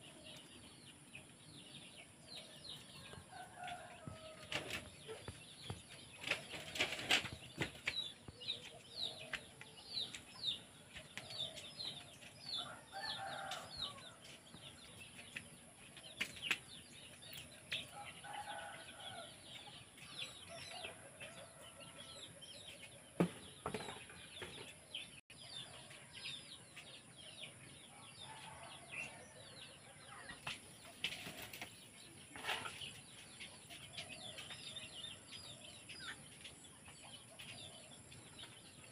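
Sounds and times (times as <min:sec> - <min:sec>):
birds chirping: 0:00.0 - 0:38.9
chickens clucking: 0:30.0 - 0:38.9.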